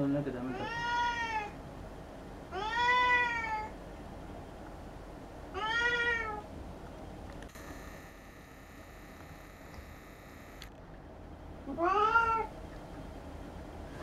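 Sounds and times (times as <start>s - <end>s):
cat meowing: 0.5s - 1.6s, 2.5s - 3.7s, 5.5s - 6.4s, 11.7s - 12.5s.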